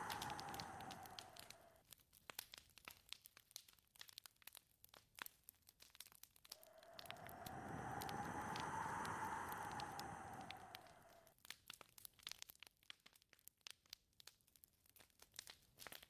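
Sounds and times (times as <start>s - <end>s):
wind whistling: 0.0s - 1.8s, 6.6s - 11.3s
faint sparse crackles: 0.0s - 16.0s.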